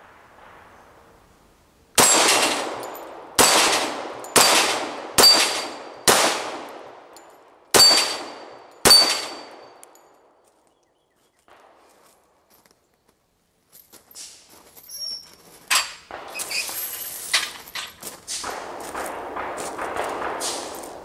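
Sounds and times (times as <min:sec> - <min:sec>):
pistol shots echoing: 0:02.0 - 0:10.3, 0:16.1 - 0:16.5, 0:18.4 - 0:21.0.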